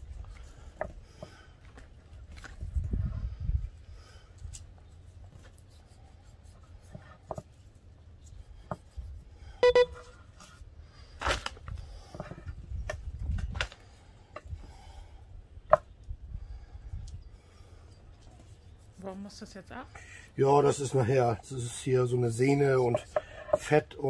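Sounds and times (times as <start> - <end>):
short honk-like tone: 9.6 - 10.2.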